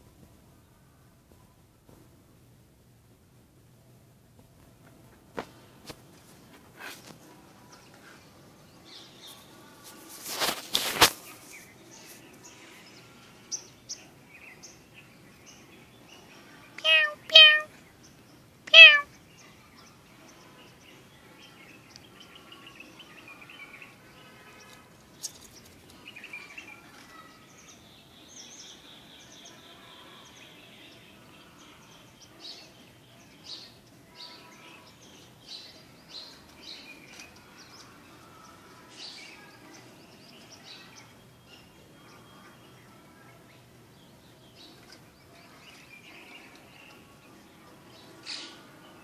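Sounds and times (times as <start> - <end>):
small birds chirping: 5.1 - 49.0
cat meowing: 16.8 - 17.7, 18.7 - 19.1.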